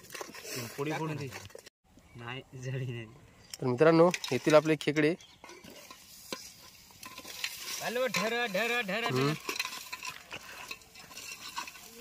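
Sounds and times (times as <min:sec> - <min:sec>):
sizzling: 0:04.1 - 0:12.0
ladle clinking in pot: 0:09.0 - 0:12.0.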